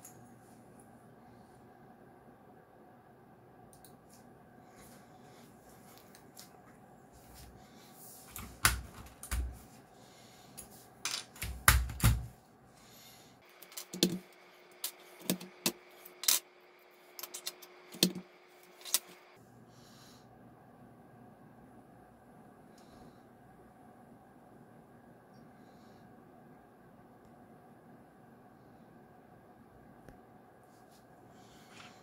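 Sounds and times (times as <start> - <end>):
handling sounds: 17.1 - 19.3.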